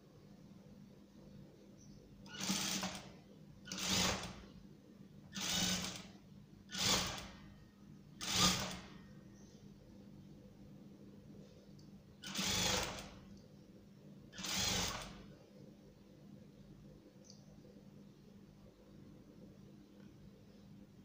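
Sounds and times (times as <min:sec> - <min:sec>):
faint low hum: 0:00.0 - 0:21.0
sewing machine stitching: 0:02.3 - 0:03.1, 0:03.7 - 0:04.4, 0:05.4 - 0:06.1, 0:06.7 - 0:07.4, 0:08.2 - 0:08.9, 0:12.2 - 0:13.2, 0:14.4 - 0:15.2.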